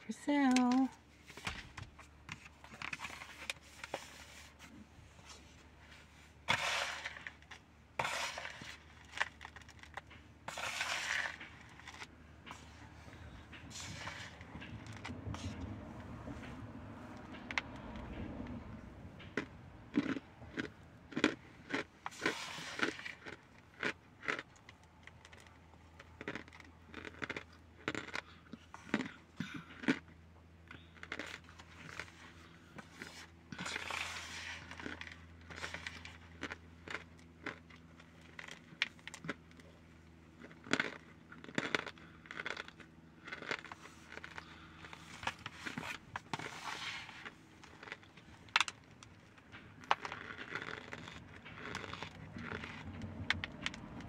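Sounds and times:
cornstarch crunching: 6.4 - 15.6, 19.4 - 30.1, 30.7 - 39.7, 40.4 - 54.0.

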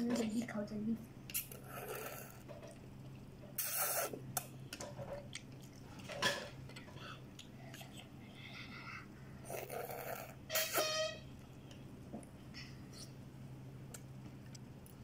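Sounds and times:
people slurping noodles: 1.4 - 2.5, 3.6 - 4.2.

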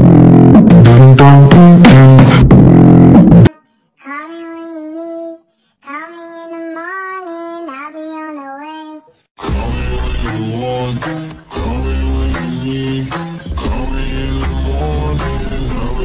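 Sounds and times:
high voice singing: 3.5 - 16.0
backing music with a beat: 9.4 - 16.0.

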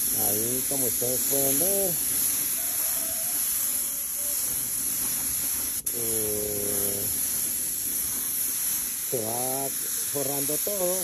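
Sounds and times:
spray gun hissing: 0.0 - 11.0.

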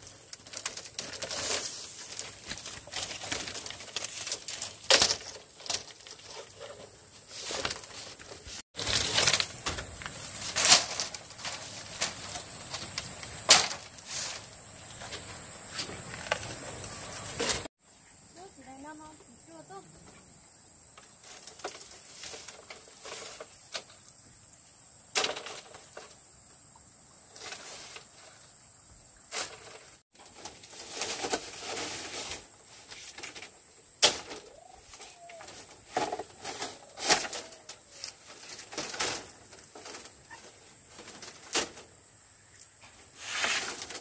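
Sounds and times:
bamboo poles knocking and clattering: 0.0 - 17.7, 21.0 - 24.0, 25.1 - 26.2, 29.3 - 42.0
scraping and rustling: 0.0 - 17.7, 21.0 - 24.0, 27.3 - 28.5, 29.3 - 42.0, 42.8 - 44.0.

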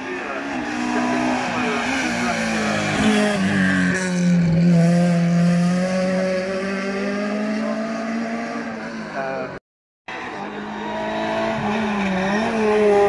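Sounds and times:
car engine running hard: 0.0 - 9.5.

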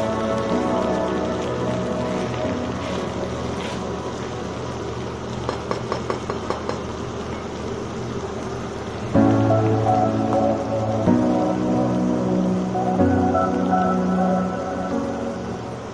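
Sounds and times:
music: 0.0 - 4.8, 9.2 - 15.9
steady low hum: 0.0 - 15.9
metal spatula knocking on pan: 5.5 - 6.8.

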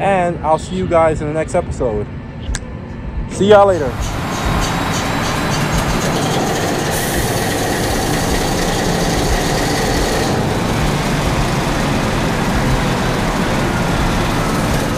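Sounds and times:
marine diesel engine running: 3.8 - 14.9.

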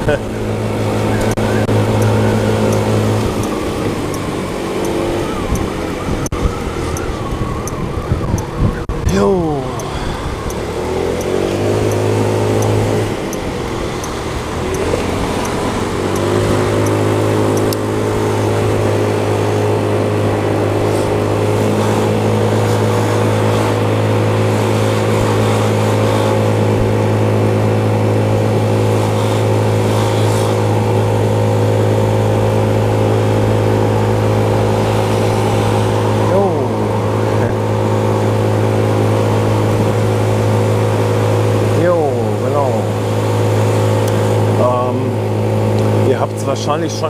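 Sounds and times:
scooter engine running: 0.0 - 47.0
faint regular ticks: 14.0 - 17.0.

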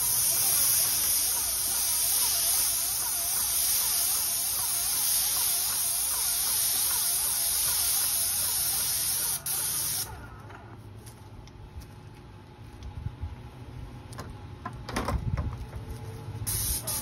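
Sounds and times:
paint spray gun hissing: 0.0 - 10.1, 16.5 - 17.0.

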